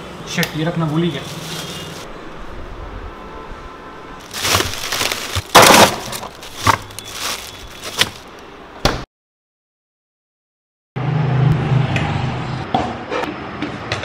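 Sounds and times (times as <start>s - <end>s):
plastic bags rustling and crinkling: 0.8s - 2.1s, 4.2s - 8.4s.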